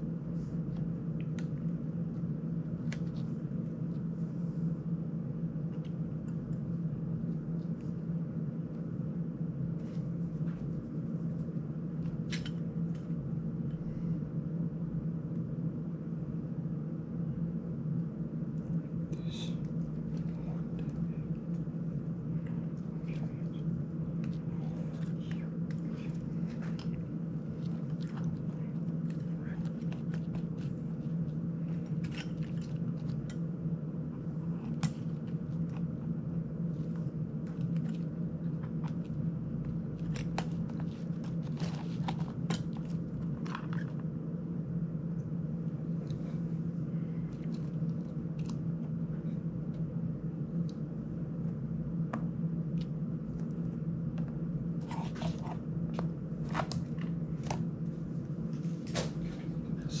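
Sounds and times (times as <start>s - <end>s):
steady low hum: 0.0s - 60.0s.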